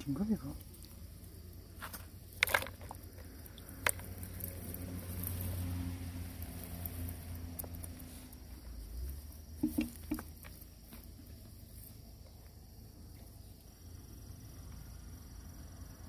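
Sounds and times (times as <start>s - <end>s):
fish trap handling noise: 1.8s - 5.4s
short knocks: 9.6s - 10.5s.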